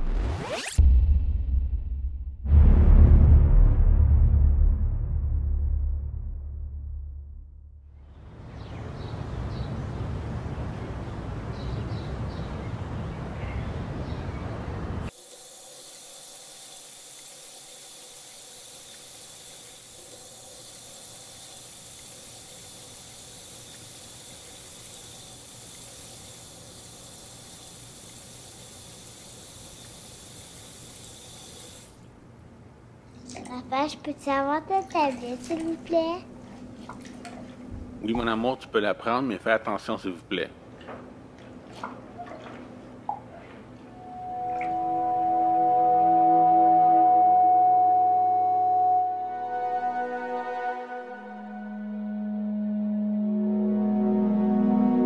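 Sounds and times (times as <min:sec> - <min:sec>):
loud low rumble: 0:00.8 - 0:08.0.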